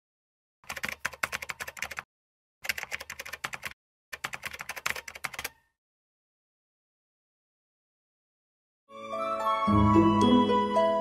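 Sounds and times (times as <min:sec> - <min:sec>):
rapid keyboard typing: 0:00.6 - 0:05.6.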